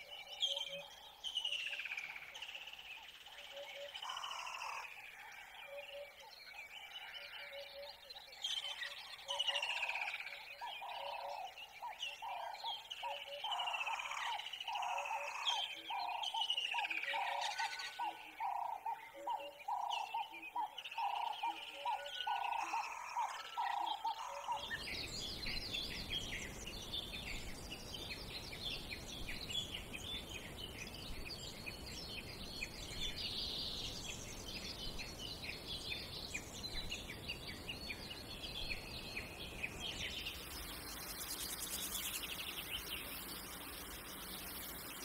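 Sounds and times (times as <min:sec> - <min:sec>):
small birds chirping: 0:00.0 - 0:45.0
background hiss: 0:24.6 - 0:45.0.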